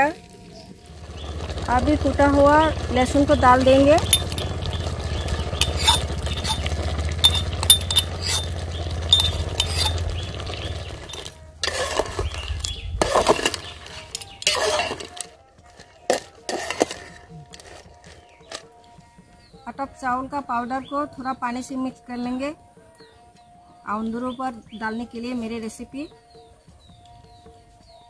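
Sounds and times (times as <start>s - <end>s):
metal spatula scraping pot: 3.0s - 18.8s
metal spoon clinking on cup: 4.0s - 4.9s, 5.6s - 10.0s, 11.1s - 18.7s.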